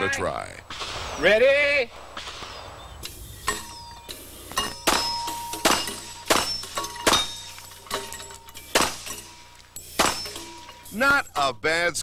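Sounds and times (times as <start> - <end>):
metallic ring of targets: 3.4 - 11.5
pistol shots: 4.8 - 9.4, 10.0 - 10.6.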